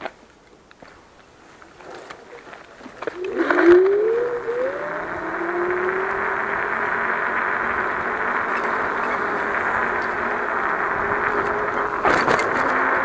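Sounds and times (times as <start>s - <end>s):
road and wind noise: 0.0s - 13.0s
electric scooter motor whining: 2.8s - 13.0s.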